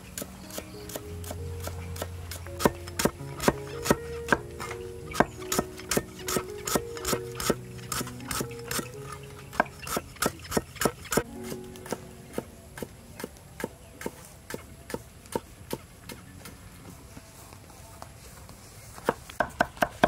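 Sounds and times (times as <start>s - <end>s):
background music: 0.0s - 14.8s.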